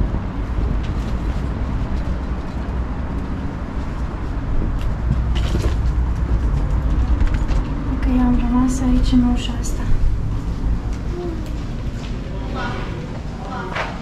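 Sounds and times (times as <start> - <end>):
wheeled suitcase rolling: 0.0 - 11.0.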